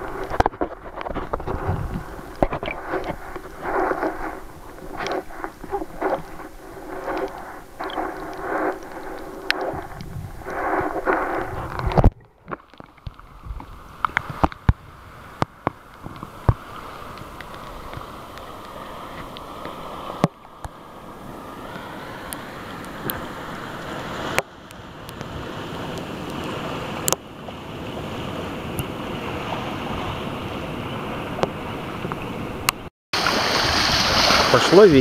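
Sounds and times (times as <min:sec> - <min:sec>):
steady hum: 0:00.0 - 0:12.6
wind on the microphone: 0:00.0 - 0:20.3
water lapping against camera housing: 0:00.0 - 0:20.8
muffled underwater swishing and bubbling: 0:00.0 - 0:27.2.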